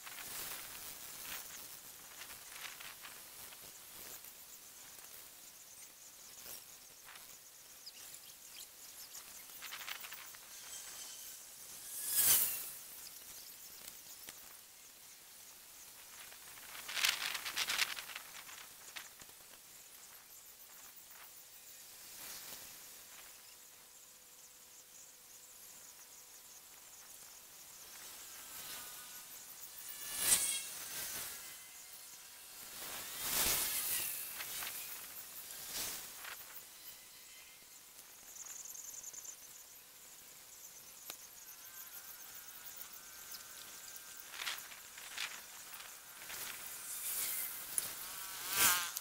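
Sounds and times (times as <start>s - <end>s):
soft ticks and rustles: 0.0s - 11.4s, 15.5s - 23.4s, 40.9s - 49.0s
insects chirring: 0.0s - 49.0s
thin high hiss: 0.0s - 49.0s.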